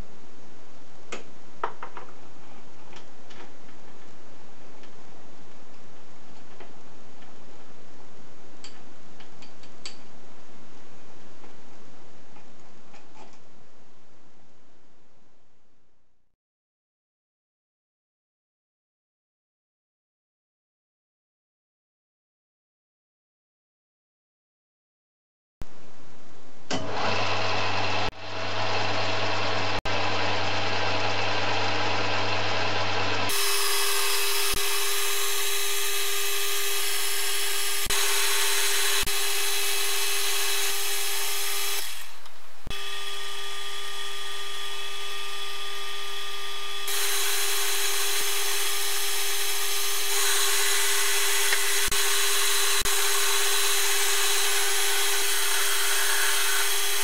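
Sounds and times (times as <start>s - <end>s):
metal lathe whine: 27.0s - 42.0s, 42.8s - 57.0s
lathe tool cutting steel: 27.0s - 42.1s, 46.8s - 57.0s.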